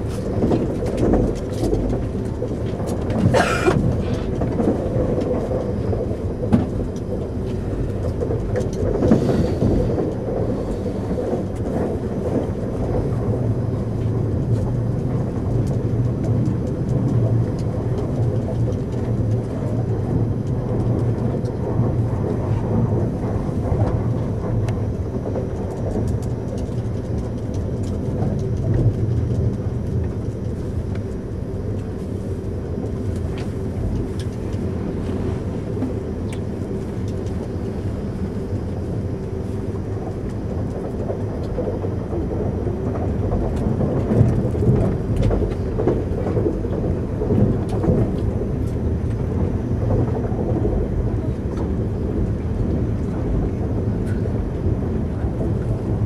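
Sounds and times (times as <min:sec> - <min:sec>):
train interior low rumble: 0:00.0 - 0:56.0.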